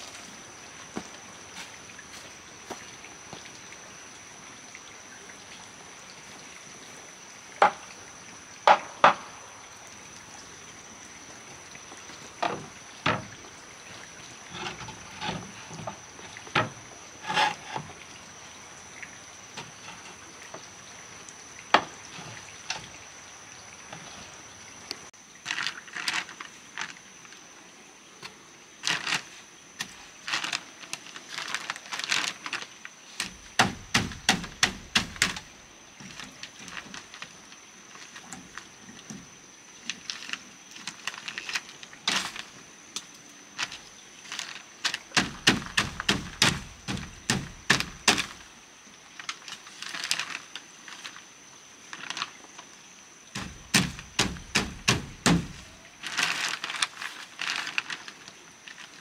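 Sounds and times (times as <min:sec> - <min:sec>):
background hiss: 0:00.0 - 0:59.0
sharp knocks and clatters: 0:33.2 - 0:35.5, 0:45.1 - 0:48.4, 0:53.4 - 0:55.7.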